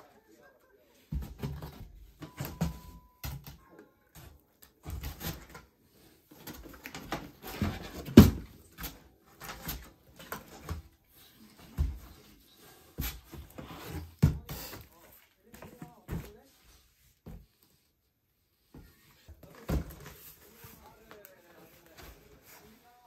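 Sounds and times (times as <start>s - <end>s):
cardboard rustling: 4.3s - 18.0s, 18.6s - 23.0s.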